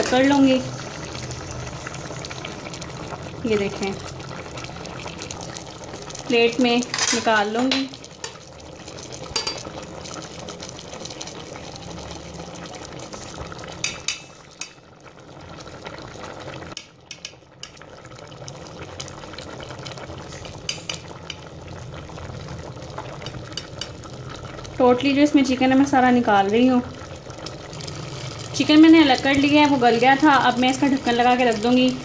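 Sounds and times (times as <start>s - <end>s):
pot bubbling: 0.0s - 32.0s.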